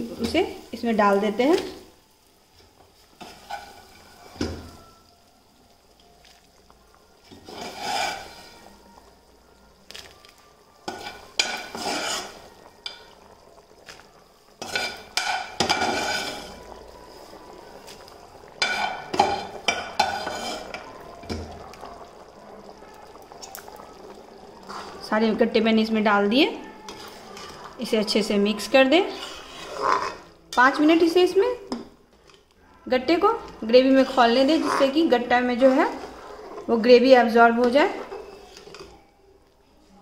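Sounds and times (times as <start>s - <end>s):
gravy bubbling: 0.0s - 30.9s, 32.7s - 39.6s
metal spoon scraping pans: 7.3s - 8.6s, 10.9s - 12.5s, 14.6s - 16.6s, 18.6s - 20.8s, 29.0s - 30.3s.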